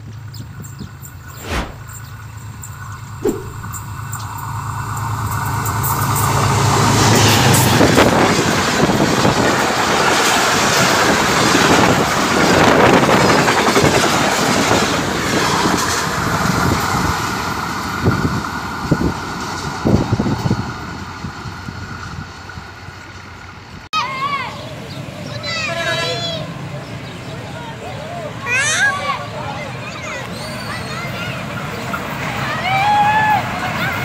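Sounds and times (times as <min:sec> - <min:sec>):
train wheels rushing on rails: 0:05.1 - 0:23.7.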